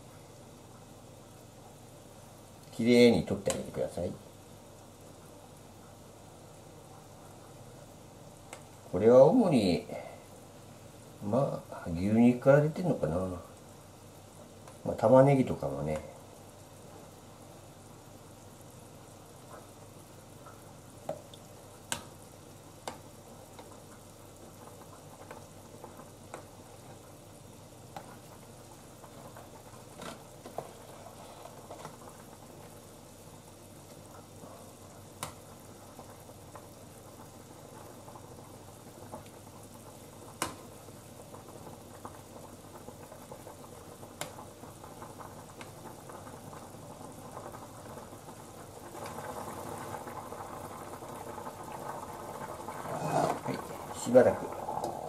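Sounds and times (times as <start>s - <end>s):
broth bubbling: 18.3s - 55.0s.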